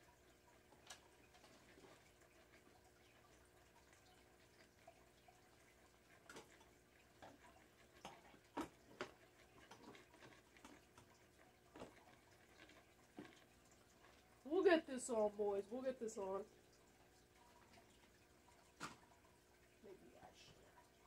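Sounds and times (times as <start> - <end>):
faint clicks and taps from handling: 6.1 - 14.4.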